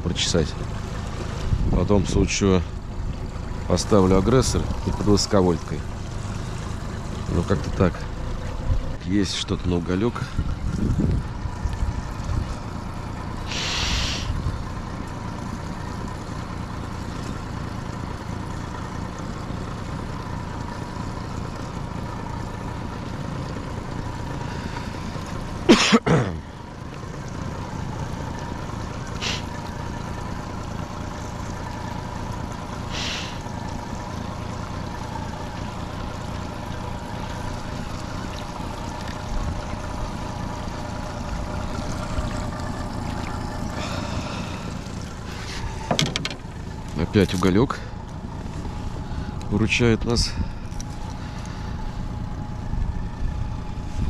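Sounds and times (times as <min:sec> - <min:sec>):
outboard motor running: 0:00.0 - 0:54.0
brief hissing: 0:13.5 - 0:14.3, 0:29.2 - 0:29.5, 0:32.9 - 0:33.4.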